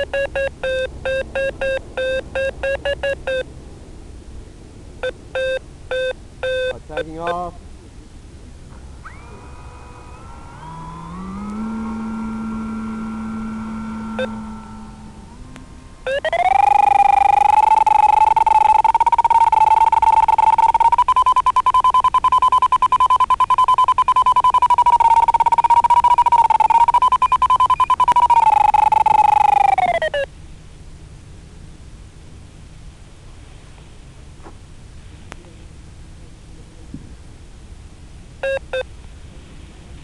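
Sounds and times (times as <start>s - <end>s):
fast electronic beeping: 0.0s - 3.5s, 10.0s - 15.4s, 16.0s - 30.3s
steady low tone: 0.0s - 29.1s.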